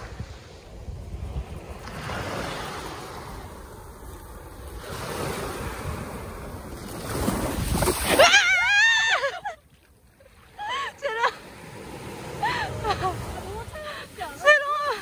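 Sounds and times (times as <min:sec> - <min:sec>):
wind noise on microphone: 0:00.0 - 0:08.2
surf: 0:00.0 - 0:15.0
woman's high-pitched wavering cry: 0:08.2 - 0:09.6, 0:10.6 - 0:11.4.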